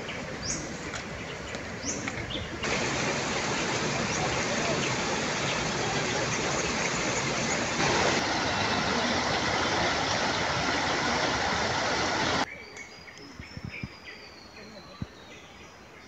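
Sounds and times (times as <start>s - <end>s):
river rushing over rocks: 2.6s - 12.5s.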